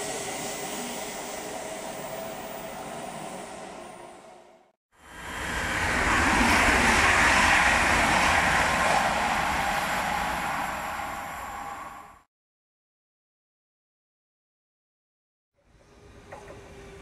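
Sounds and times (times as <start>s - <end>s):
rushing air: 5.0s - 12.3s
train wheels on rail: 5.2s - 12.2s.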